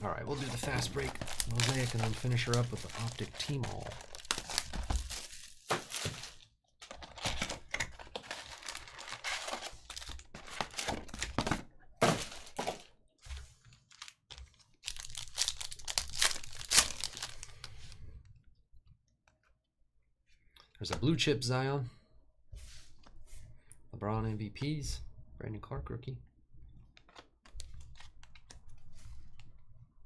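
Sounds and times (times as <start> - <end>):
foil packs ripping and crinkling: 0.3 - 12.9, 13.9 - 17.8.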